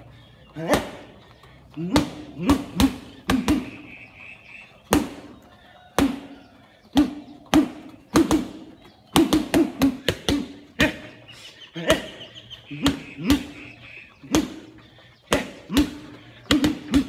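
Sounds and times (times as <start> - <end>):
gloves punching heavy bag: 6.0 - 11.1, 14.2 - 17.0.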